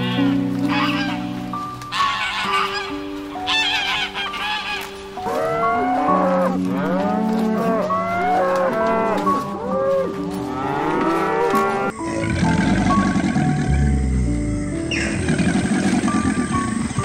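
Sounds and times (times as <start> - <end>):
cows mooing: 5.2 - 14.4.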